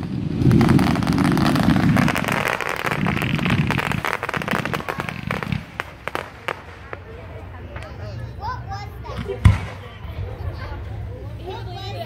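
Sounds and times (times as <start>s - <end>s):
low fireworks booms: 0.0s - 8.2s, 9.0s - 10.4s
fireworks crackling and popping: 0.0s - 8.3s, 9.0s - 9.9s
sharp fireworks cracks: 0.0s - 8.3s, 9.0s - 9.9s.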